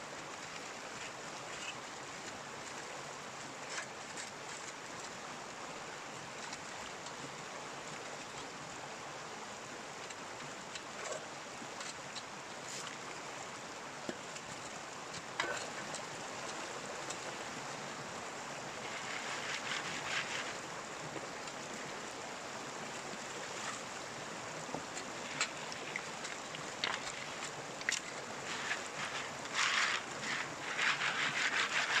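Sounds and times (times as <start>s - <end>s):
stream water running: 0.0s - 32.0s
gravel clicking against pan: 24.9s - 32.0s.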